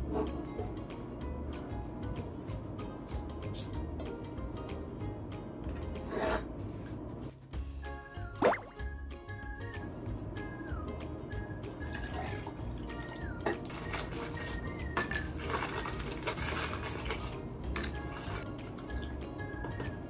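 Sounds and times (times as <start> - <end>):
background music: 0.0 - 20.0
plastic bag crinkling: 13.7 - 17.3
glass clinking: 15.0 - 15.5, 17.7 - 18.2.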